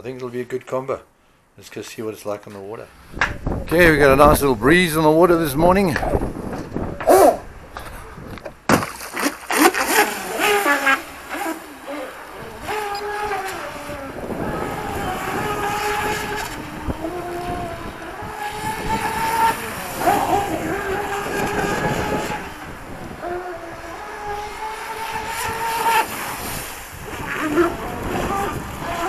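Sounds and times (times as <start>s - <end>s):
electric motor whining: 9.6s - 29.0s.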